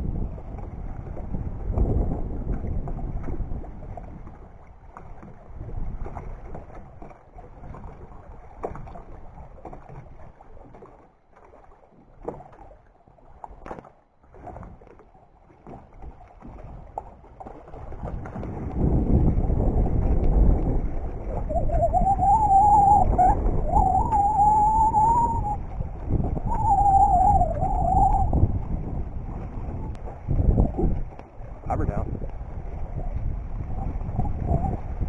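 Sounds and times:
wind buffeting microphone: 0.0 - 10.8, 15.6 - 35.0
water lapping at dock: 0.0 - 35.0.

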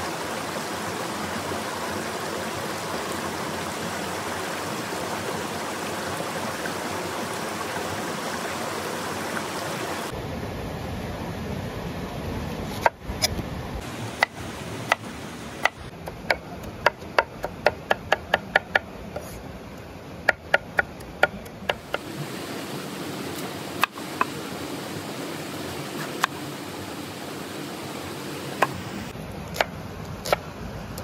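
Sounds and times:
steady background noise: 0.0 - 31.0.

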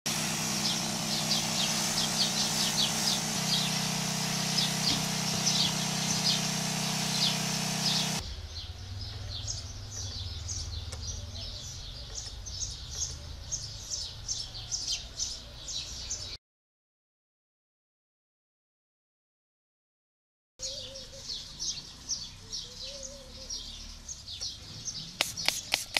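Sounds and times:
steady hiss: 0.1 - 8.2, 25.2 - 25.9
low hum: 0.1 - 9.0
small birds chirping: 0.1 - 16.4, 20.6 - 25.9.

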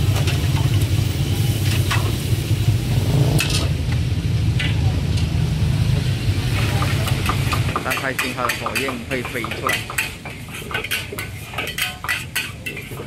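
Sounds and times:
frying sizzle: 0.0 - 13.0
metal ladle scraping a wok: 6.5 - 13.0.

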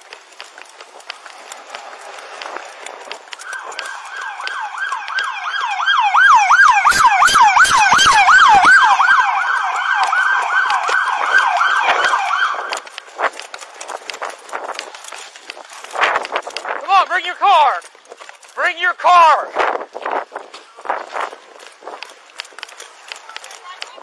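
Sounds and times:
emergency siren yelping: 3.4 - 12.8.

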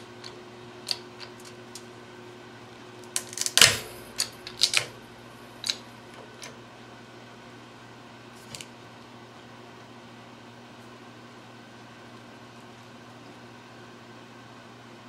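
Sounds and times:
walnut shell cracking: 3.0 - 5.0.

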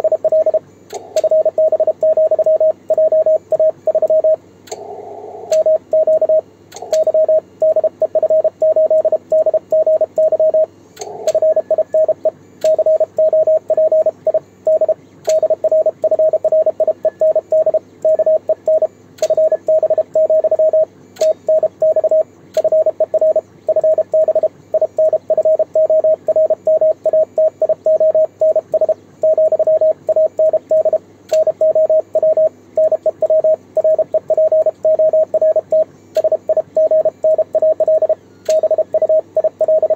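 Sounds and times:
morse code beeps: 0.0 - 0.6, 1.2 - 4.4, 5.6 - 39.9
faint sharp clicks: 12.6 - 12.8, 15.2 - 15.4, 31.3 - 31.5, 38.4 - 38.6.

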